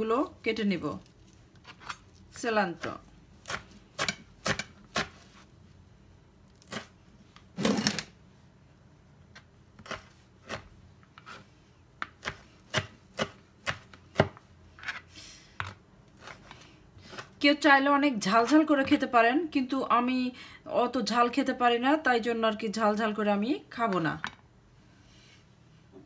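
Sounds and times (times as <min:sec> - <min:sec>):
knife chopping on plastic cutting board: 0:12.0 - 0:14.4.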